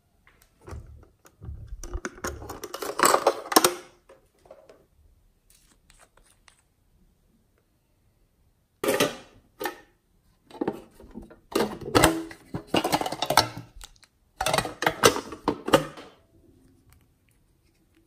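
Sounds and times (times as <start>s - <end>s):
metal tin clattering and clicking: 11.5s - 13.7s, 14.4s - 16.1s.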